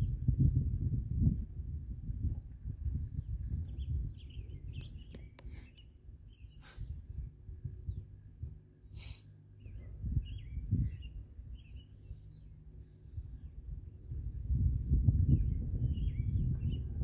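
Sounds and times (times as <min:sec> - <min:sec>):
wind rumble on microphone: 0:00.0 - 0:08.8, 0:09.5 - 0:17.0
insect chirping: 0:00.4 - 0:03.6
bird chirps: 0:03.5 - 0:06.8, 0:09.6 - 0:12.6.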